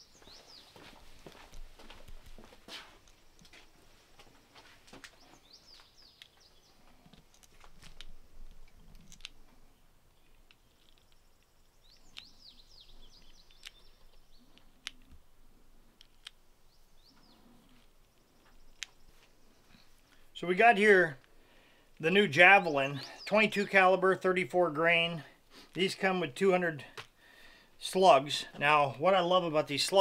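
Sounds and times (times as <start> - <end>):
birds chirping: 0.0 - 1.6, 4.4 - 30.0
small clicks of pellets loading: 7.1 - 9.4, 10.1 - 12.4, 16.0 - 16.4.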